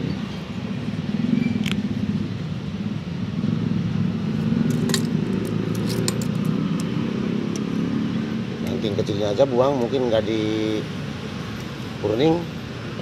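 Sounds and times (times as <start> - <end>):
cutter snipping twigs: 4.6 - 7.7.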